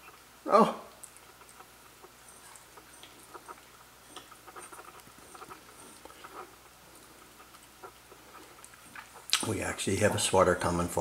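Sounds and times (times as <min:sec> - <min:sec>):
puppy licking a bowl: 0:00.9 - 0:09.6.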